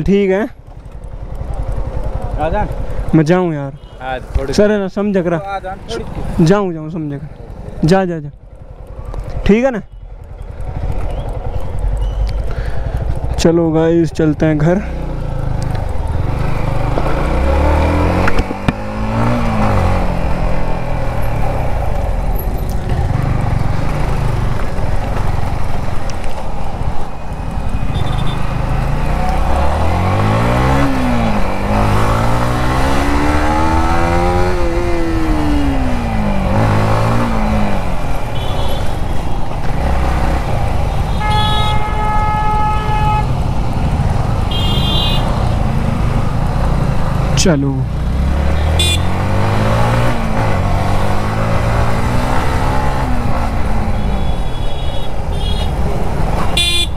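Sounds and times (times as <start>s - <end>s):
traffic noise: 0.0s - 56.9s
wind: 0.0s - 56.9s
motorcycle engine revving: 0.6s - 56.9s
vehicle horn: 27.9s - 28.4s, 38.4s - 39.1s, 41.0s - 43.3s, 44.5s - 45.3s, 48.6s - 49.2s, 54.0s - 55.8s, 56.5s - 56.9s.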